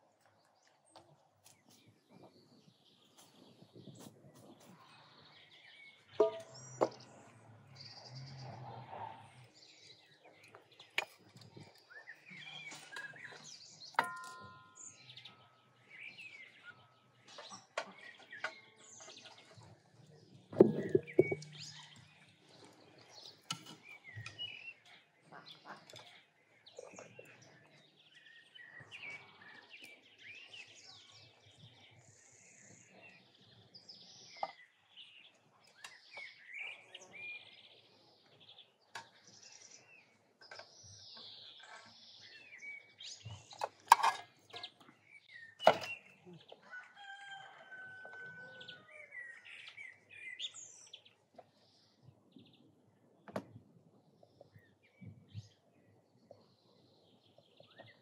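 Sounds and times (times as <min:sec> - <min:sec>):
birds chirping and singing: 0:00.4 - 0:58.0
metal skimmer clinking on pot: 0:14.0 - 0:15.0.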